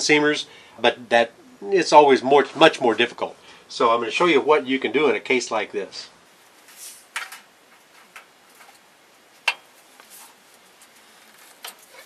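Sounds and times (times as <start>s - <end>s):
soft rustles: 6.3s - 12.0s.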